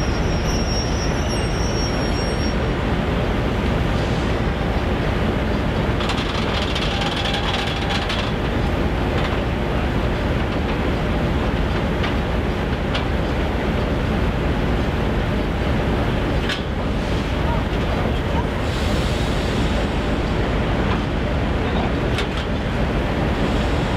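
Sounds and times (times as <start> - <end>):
diesel locomotive idling: 0.0 - 23.9
hiss: 18.6 - 20.1.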